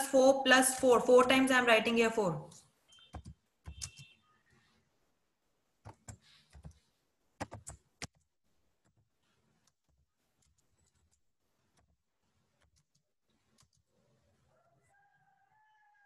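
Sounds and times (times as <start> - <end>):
keyboard keystrokes: 3.1 - 4.1, 7.4 - 8.2.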